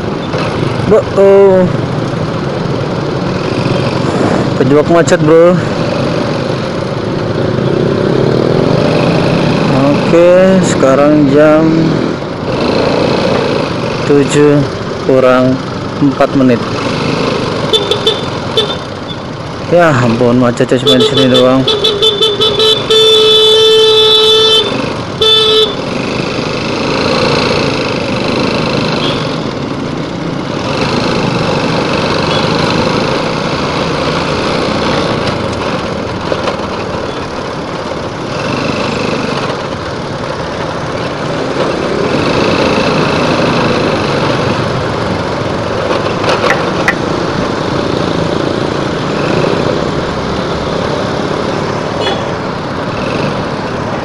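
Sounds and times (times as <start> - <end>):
motorcycle engine riding: 0.0 - 54.0
wind and road noise: 0.0 - 54.0
vehicle horn: 17.7 - 18.8, 20.8 - 25.8, 29.0 - 29.3, 52.0 - 52.3.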